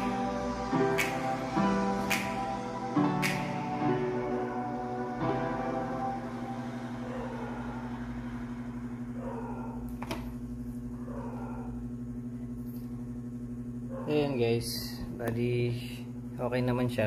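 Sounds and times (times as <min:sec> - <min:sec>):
low pulsing drone: 0:00.0 - 0:12.3.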